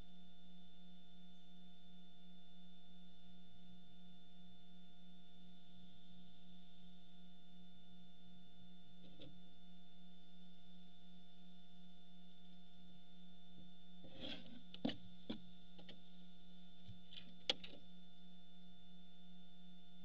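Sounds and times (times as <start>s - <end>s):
electrical hum: 0.0s - 20.0s
owls scratching and knocking: 14.0s - 16.0s, 16.8s - 17.8s.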